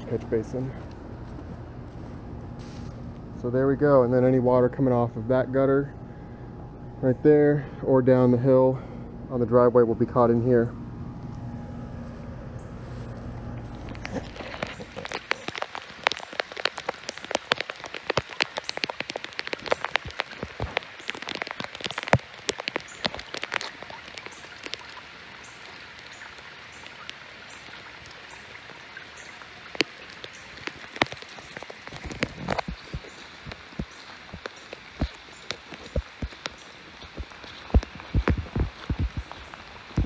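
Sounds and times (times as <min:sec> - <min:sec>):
footsteps through straw and grass: 0:00.8 - 0:03.4, 0:11.2 - 0:16.3, 0:31.3 - 0:40.0.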